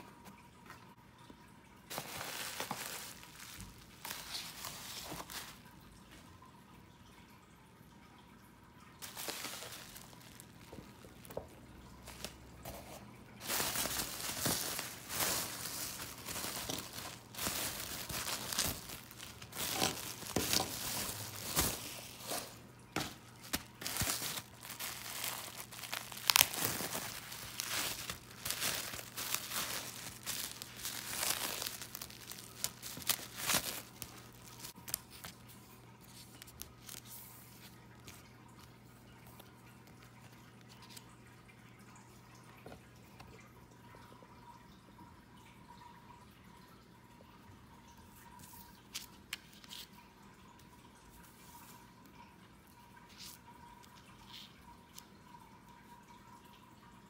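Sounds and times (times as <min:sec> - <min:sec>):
bubble wrap crinkling and crackling: 0:01.9 - 0:05.8, 0:09.0 - 0:38.6.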